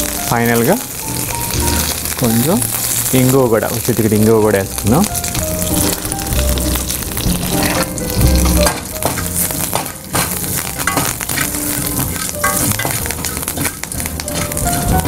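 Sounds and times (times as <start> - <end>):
oil sizzling in a pan: 0.0 - 15.0
spatula scraping a pan: 6.8 - 15.0.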